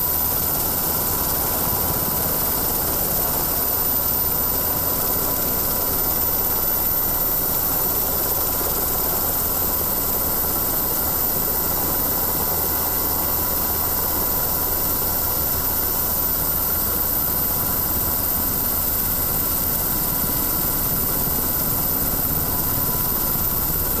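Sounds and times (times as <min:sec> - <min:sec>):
aircraft engine drone: 0:00.0 - 0:24.0.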